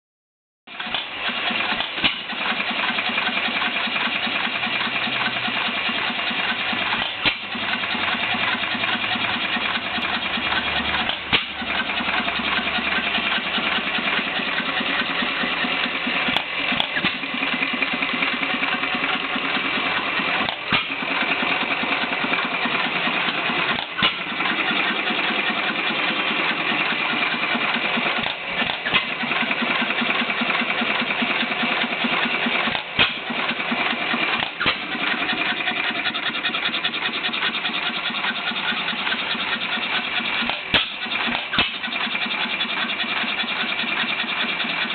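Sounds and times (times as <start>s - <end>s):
gas engine clattering: 0.7s - 44.9s
engine bang: 6.8s - 18.5s.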